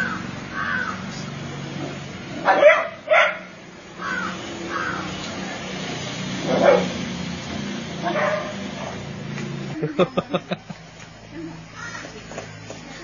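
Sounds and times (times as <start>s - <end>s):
dog barking: 2.4s - 3.5s, 6.4s - 7.0s, 8.0s - 9.0s.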